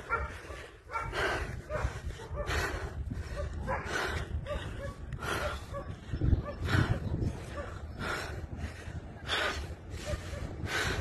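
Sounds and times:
dog barking: 0:00.0 - 0:02.6, 0:03.3 - 0:07.8, 0:10.0 - 0:10.6
steady low rumble: 0:00.0 - 0:11.0.

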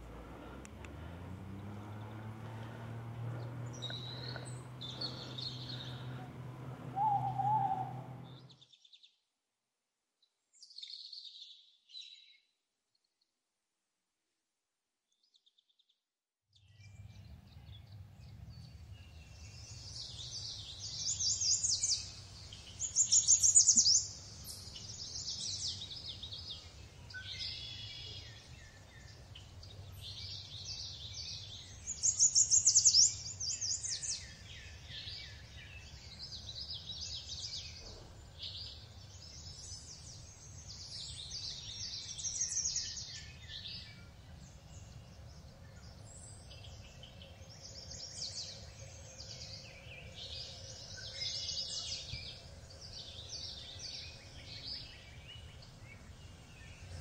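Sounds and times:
faint low rumble: 0:00.0 - 0:08.5
birds singing: 0:00.0 - 0:08.9, 0:16.6 - 0:57.0.

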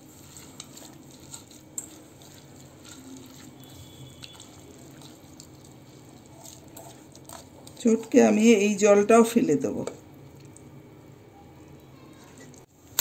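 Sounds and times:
wet squelching of mashing: 0:00.0 - 0:08.6.

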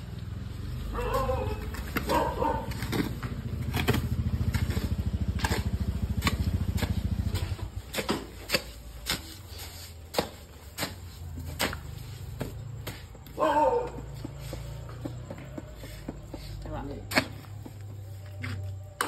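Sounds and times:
hoe chopping and scraping mortar: 0:01.0 - 0:19.0
small engine running: 0:03.1 - 0:07.9.

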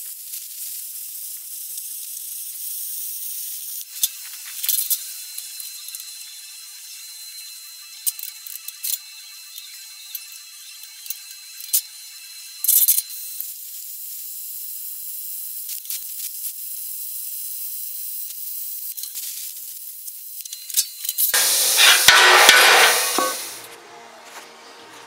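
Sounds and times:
welding arc sizzling and crackling: 0:00.0 - 0:23.7
loud rushing noise: 0:21.4 - 0:23.7.

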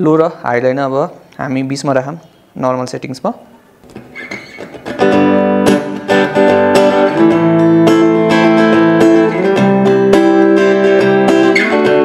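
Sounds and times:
guitar strumming chords: 0:03.9 - 0:12.0.

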